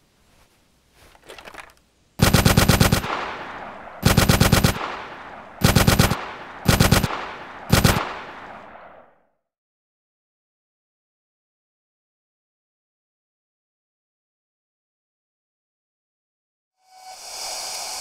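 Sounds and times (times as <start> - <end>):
machine-gun bursts: 2.2 - 3.2, 4.0 - 4.8, 5.6 - 8.1.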